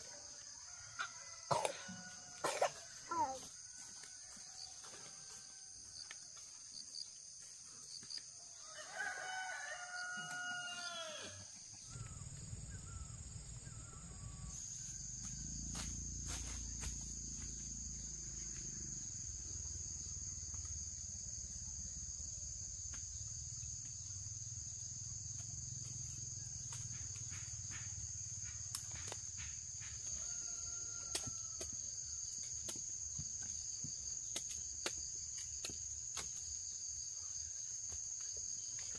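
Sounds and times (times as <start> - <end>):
rooster crowing: 0.6 - 5.8, 8.5 - 14.6, 30.0 - 32.0.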